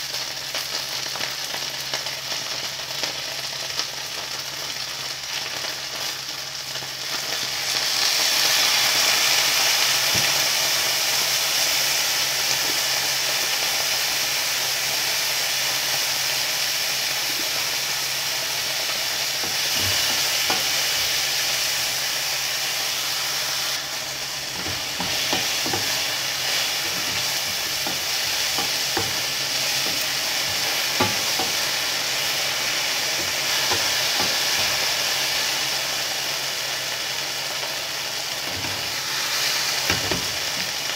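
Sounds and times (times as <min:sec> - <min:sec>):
vegetables sizzling in a wok: 0:00.0 - 0:40.9
spatula scraping vegetables: 0:23.6 - 0:35.1
spatula knocking against pan: 0:26.9 - 0:31.6.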